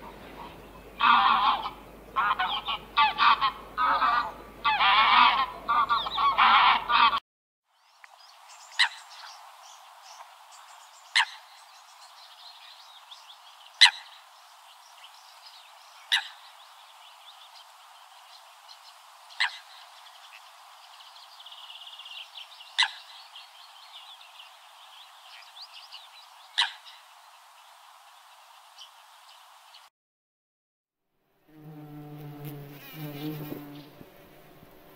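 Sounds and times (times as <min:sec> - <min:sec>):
moorhen calls: 0:00.0 - 0:07.2, 0:08.6 - 0:09.4, 0:11.0 - 0:11.6, 0:13.7 - 0:14.3, 0:15.9 - 0:17.7, 0:18.3 - 0:24.5, 0:25.2 - 0:27.1
small birds chirping: 0:05.4 - 0:06.4, 0:07.7 - 0:29.9.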